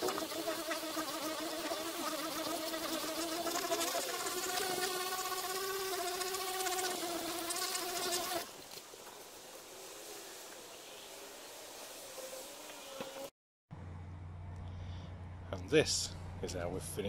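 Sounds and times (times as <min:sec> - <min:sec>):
electric buffer buzzing hum: 0:00.0 - 0:08.5.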